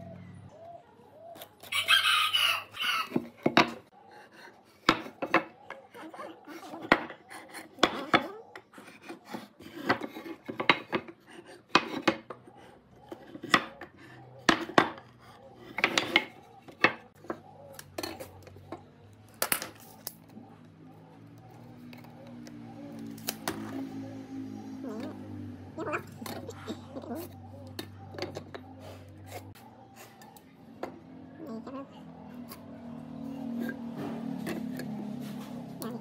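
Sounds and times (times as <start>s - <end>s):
tools knocking on wooden workbench: 3.1s - 3.8s.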